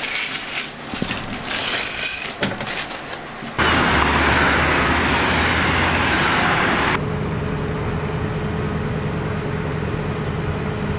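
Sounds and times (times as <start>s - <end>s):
machine hum: 3.6s - 7.0s.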